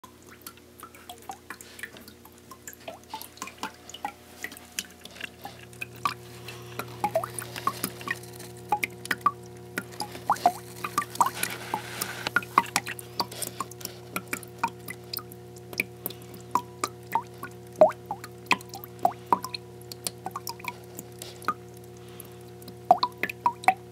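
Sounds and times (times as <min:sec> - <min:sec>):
water dripping and splashing: 0:00.0 - 0:23.9
steady low hum: 0:00.4 - 0:23.9.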